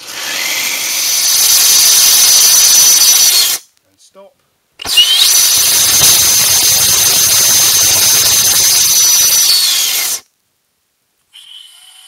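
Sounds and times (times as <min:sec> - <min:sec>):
rocket motor hissing: 0:04.8 - 0:10.2.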